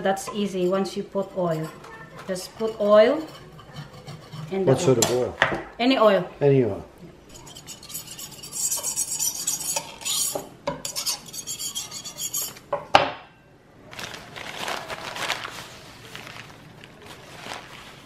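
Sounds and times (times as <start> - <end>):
paper towel scraping knife blade: 7.3 - 12.6.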